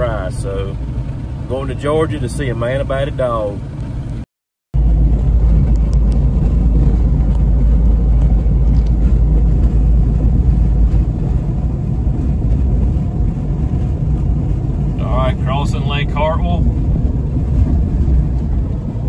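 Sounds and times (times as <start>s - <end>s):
car engine: 0.0s - 4.2s, 4.8s - 19.0s
tyre and road noise: 4.8s - 19.0s.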